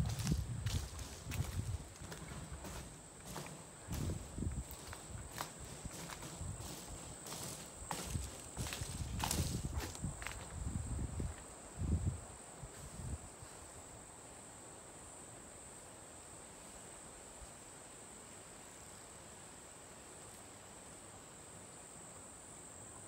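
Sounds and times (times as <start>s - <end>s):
footsteps: 0.0s - 10.6s
insects trilling: 0.0s - 23.0s.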